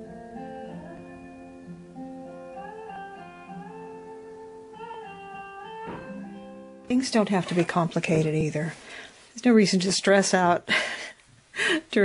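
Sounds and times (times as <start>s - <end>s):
acoustic guitar slow melody: 0.0s - 9.3s.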